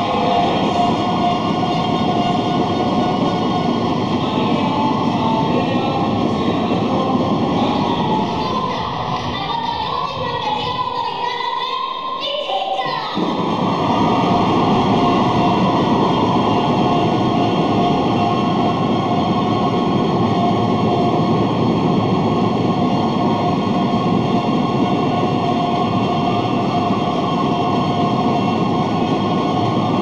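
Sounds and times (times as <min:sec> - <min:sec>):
crowd cheering and shouting: 0:07.6 - 0:18.3.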